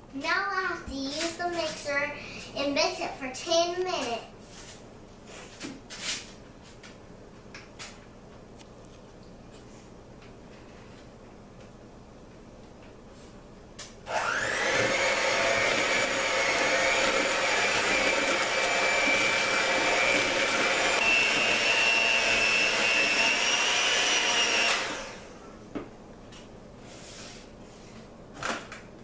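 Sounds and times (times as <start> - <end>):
electric hand mixer whining: 14.1 - 25.4.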